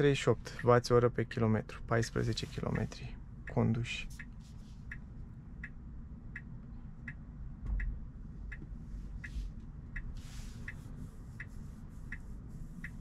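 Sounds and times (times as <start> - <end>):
road rumble inside car: 0.0 - 13.0
turn signal ticking: 0.5 - 0.9, 3.4 - 13.0
low thud: 7.6 - 8.0.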